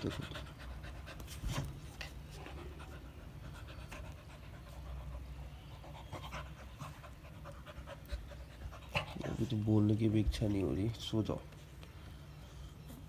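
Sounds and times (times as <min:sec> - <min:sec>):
dog panting: 0:00.0 - 0:09.9.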